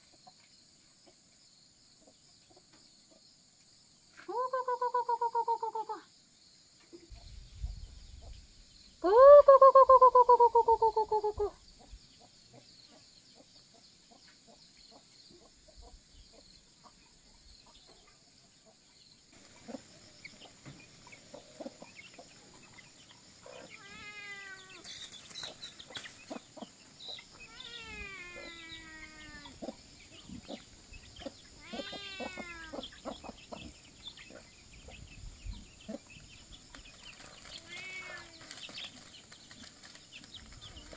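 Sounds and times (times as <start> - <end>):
chickens calling: 4.2 - 6.0, 9.0 - 18.8, 19.4 - 40.9
high insect buzz: 27.3 - 29.9.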